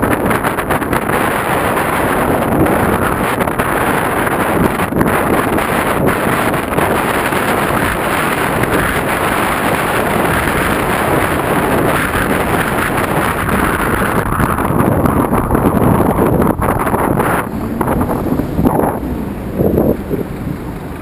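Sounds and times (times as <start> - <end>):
wind rushing over microphone: 0.0 - 21.0.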